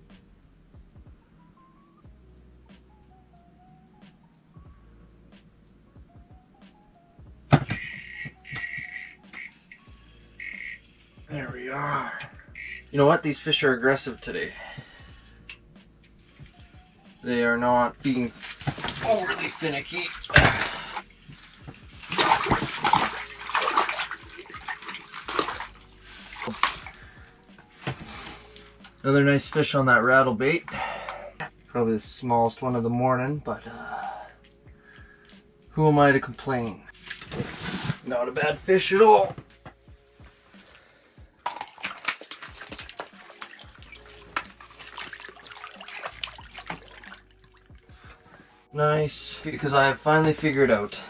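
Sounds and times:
water splashing: 17.3 - 27.1, 41.4 - 48.1.

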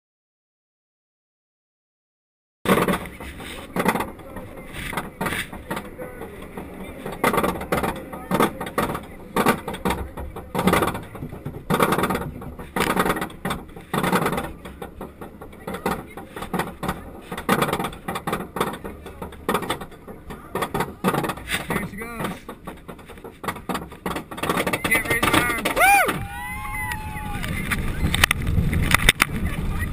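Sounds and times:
roller coaster chain clanking: 2.7 - 29.9.

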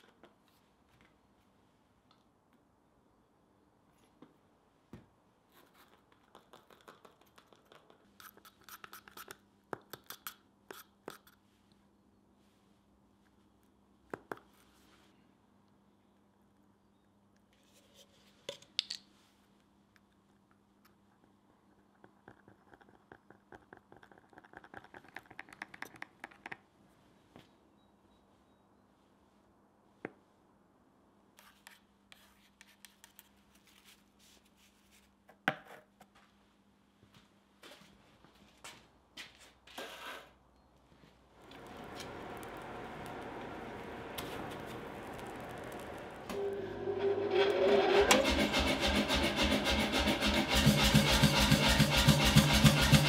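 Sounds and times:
stick stirring paste in tin can: 5.6 - 11.4, 41.4 - 46.5, 47.3 - 53.0
faint low hum: 40.5 - 47.4.

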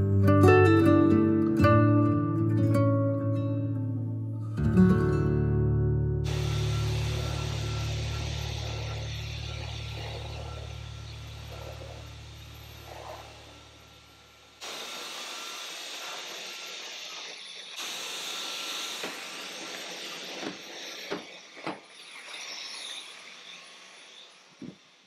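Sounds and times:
cordless vacuum whining: 6.3 - 25.0.

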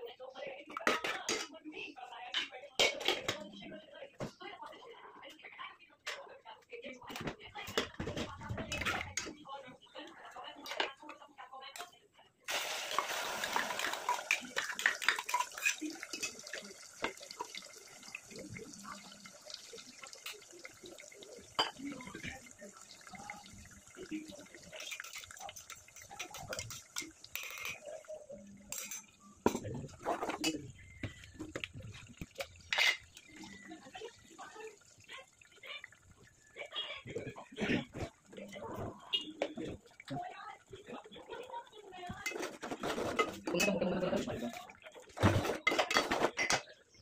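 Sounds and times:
water pouring into bowl: 12.5 - 37.4
spoon scraping in metal bowl: 13.8 - 16.4.

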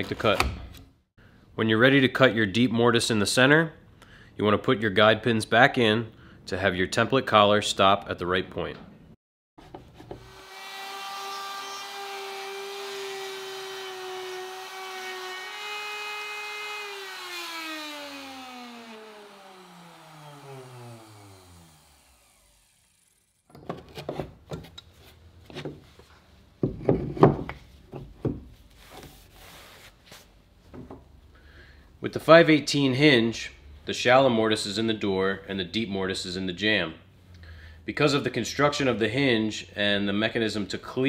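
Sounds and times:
router cutting wood: 10.0 - 23.5
router winding down whine: 10.2 - 23.5.

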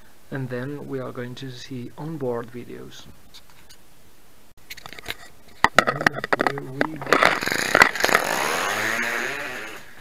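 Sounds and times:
handling clicks and knocks: 4.6 - 8.2.

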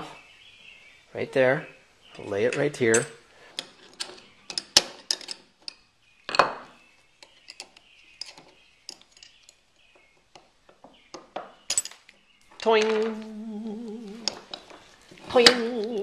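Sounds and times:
small metal parts clinking: 2.5 - 6.6, 7.2 - 9.6, 11.1 - 13.2.

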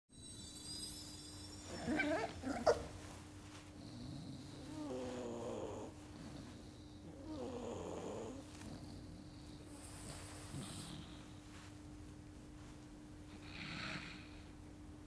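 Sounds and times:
puppy snoring: 1.5 - 3.0, 3.8 - 11.4, 13.3 - 14.6.

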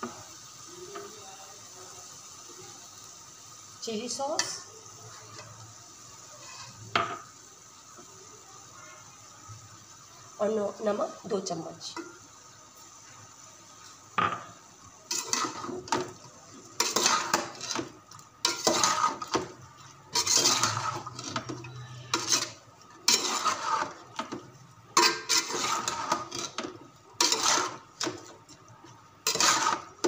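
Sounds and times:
metal spoon scraping a pot: 6.4 - 6.8, 15.1 - 16.2, 16.8 - 28.4, 29.2 - 30.0.

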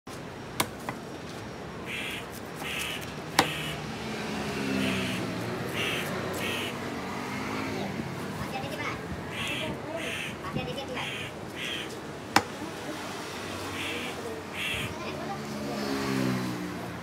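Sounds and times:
crows cawing: 1.8 - 3.9, 4.7 - 6.8, 9.3 - 12.0, 13.6 - 15.2.

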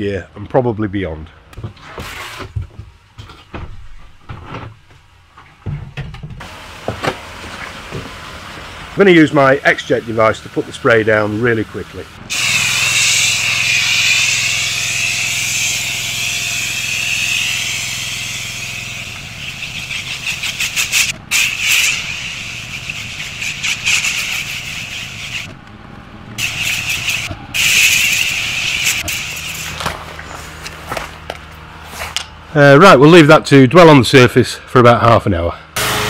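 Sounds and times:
machine running hum: 3.2 - 32.6, 35.8 - 36.0
pressure washer spray hiss: 9.2 - 15.8, 19.0 - 25.5, 26.4 - 29.7.

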